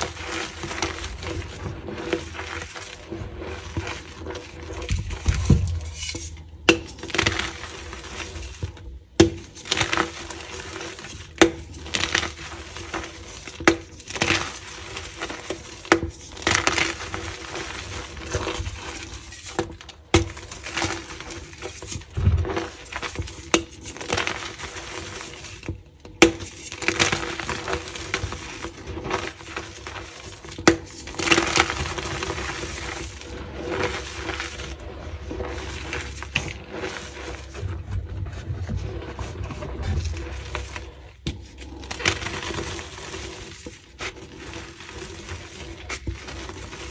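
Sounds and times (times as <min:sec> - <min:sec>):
chalk block crunching: 0:26.2 - 0:46.9.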